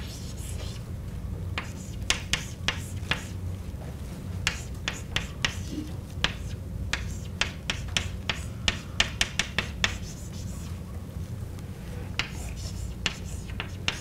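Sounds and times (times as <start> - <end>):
chalk tapping and scraping on blackboard: 0.0 - 0.8, 1.6 - 3.4, 4.4 - 10.7, 12.2 - 14.0
low room hum: 0.0 - 14.0.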